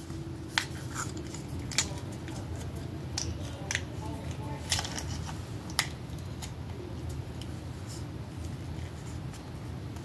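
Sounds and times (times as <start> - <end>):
low room hum: 0.0 - 10.0
small items clicking and rustling: 0.6 - 7.2.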